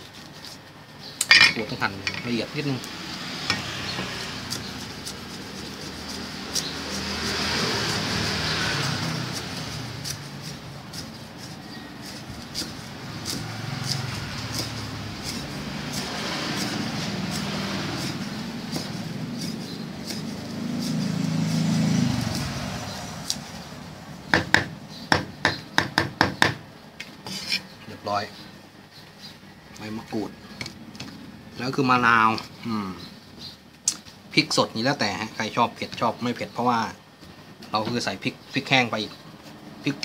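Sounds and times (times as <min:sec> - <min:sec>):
cleaver chopping on wooden block: 0:24.3 - 0:26.6.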